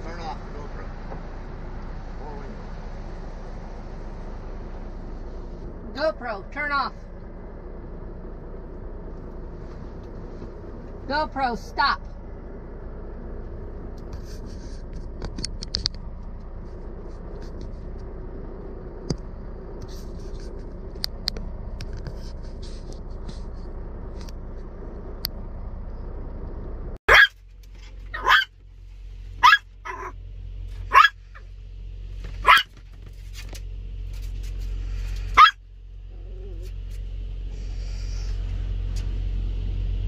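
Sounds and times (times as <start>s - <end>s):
low rumble: 0.0s - 40.0s
dog barking sharply: 27.1s - 27.4s, 28.1s - 28.5s, 29.4s - 30.2s, 30.9s - 31.2s, 32.4s - 32.7s, 35.4s - 35.6s.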